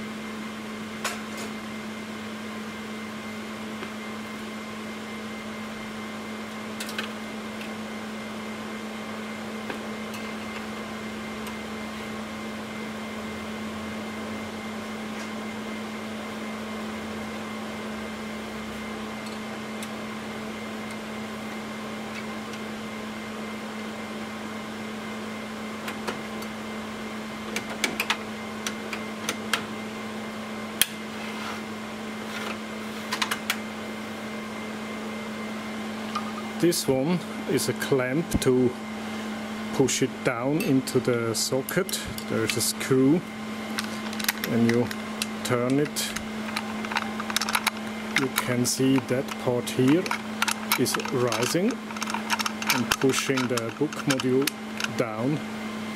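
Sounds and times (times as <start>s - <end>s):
fan humming: 0.0s - 55.9s
metal clicks and taps: 46.5s - 55.0s.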